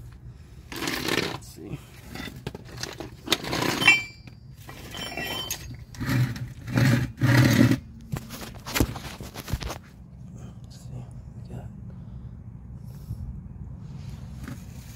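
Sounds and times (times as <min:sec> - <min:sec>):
camera handling rubbing and bumping: 0:08.0 - 0:10.0.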